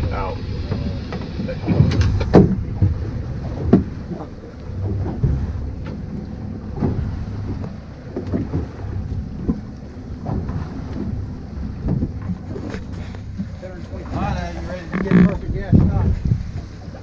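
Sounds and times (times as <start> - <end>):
boat engine rumble: 0.0 - 17.0
wind on microphone: 0.0 - 17.0
dull knocks: 0.7 - 6.1.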